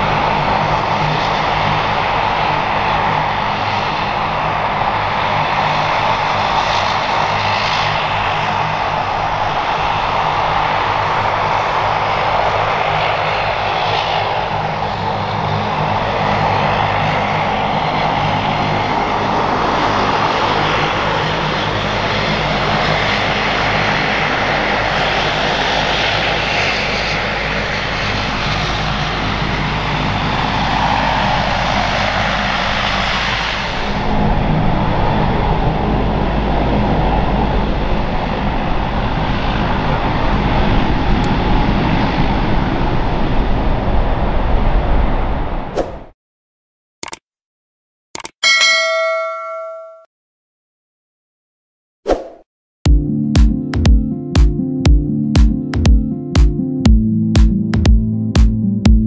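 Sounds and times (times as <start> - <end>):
turboprop engine whine: 0.0 - 45.8, 52.9 - 59.0
low propeller hum: 0.0 - 46.1, 52.9 - 59.0.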